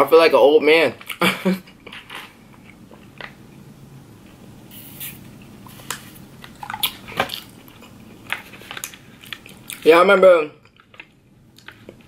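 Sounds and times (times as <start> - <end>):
brief hiss: 4.7 - 5.2
sipping through a straw: 4.7 - 5.9.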